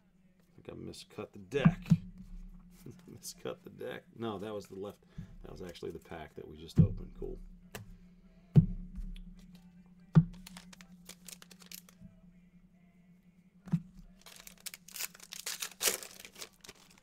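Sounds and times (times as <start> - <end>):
foil wrapper tearing: 10.3 - 12.0, 14.2 - 17.0.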